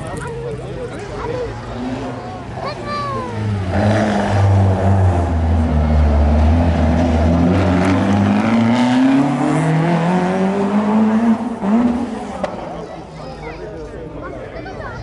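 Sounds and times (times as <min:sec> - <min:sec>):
car engine accelerating: 0:03.3 - 0:12.8.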